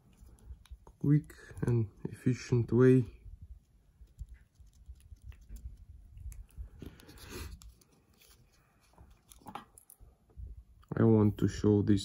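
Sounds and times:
rustling scrape: 4.3 - 9.8.

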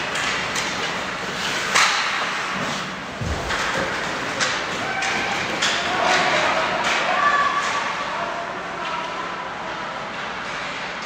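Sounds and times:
puck and sticks hitting boards: 0.0 - 8.0
arena noise: 1.9 - 11.0.

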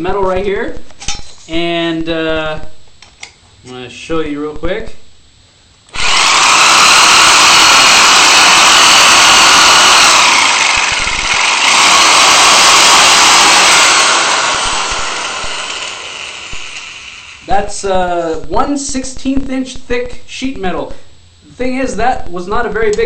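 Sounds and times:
electric metal shear cutting: 5.9 - 17.5.

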